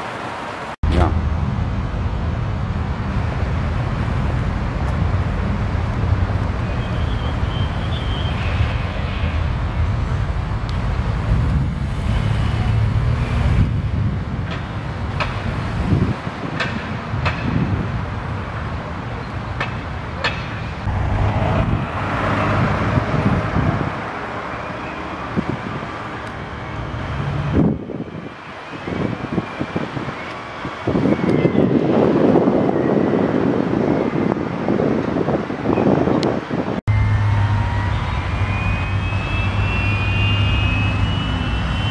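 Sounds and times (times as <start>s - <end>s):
motorcycles and car passing slowly: 1.3s - 28.4s
wind on microphone: 8.4s - 18.7s, 20.8s - 24.5s, 25.2s - 26.2s, 27.1s - 36.8s
outdoor rumble: 19.9s - 24.5s.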